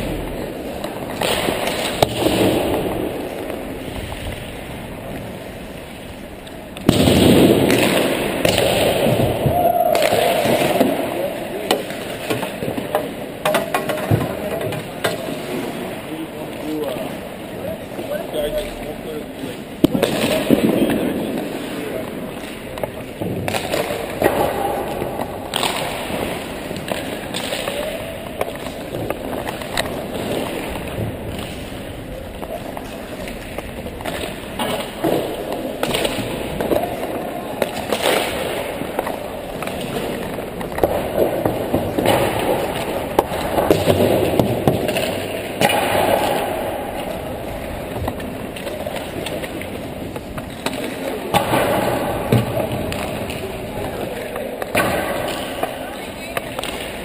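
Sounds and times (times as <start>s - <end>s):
skate blades scraping ice: 0.1s - 7.0s, 18.5s - 57.0s
hockey pucks knocking: 0.4s - 3.8s, 11.6s - 15.6s, 19.8s - 57.0s.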